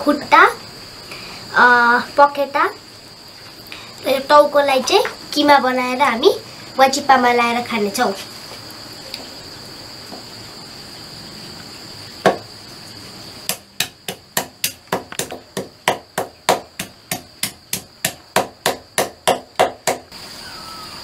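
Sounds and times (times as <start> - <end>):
high insect drone: 0.0 - 21.0
knife chopping on wooden block: 13.5 - 20.1.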